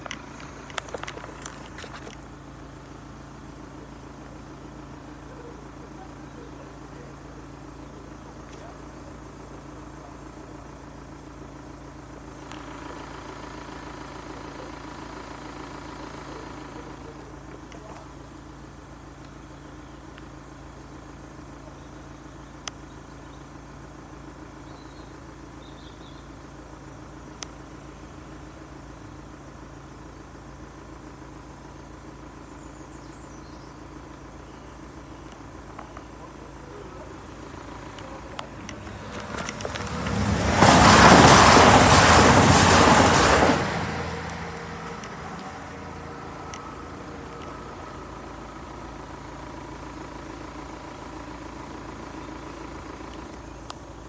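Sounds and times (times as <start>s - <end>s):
vehicles idling: 0.0s - 54.0s
sharp clicks: 37.4s - 40.2s.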